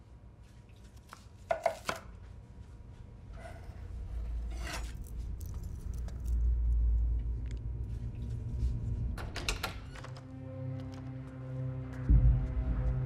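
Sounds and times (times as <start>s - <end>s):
deep low rumble: 5.2s - 9.2s, 12.0s - 13.0s.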